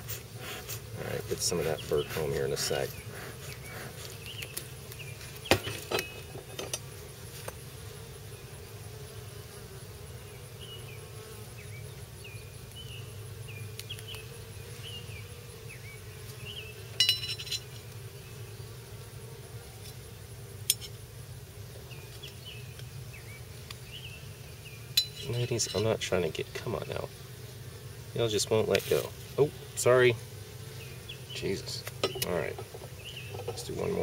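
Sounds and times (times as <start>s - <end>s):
honeybees buzzing: 0.0s - 34.0s
sharp metallic clinks: 17.0s - 17.8s, 25.0s - 26.0s.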